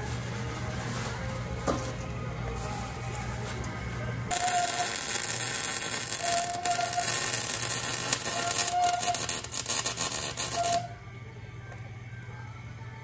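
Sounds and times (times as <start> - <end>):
welding arc hissing and crackling: 4.3 - 10.9.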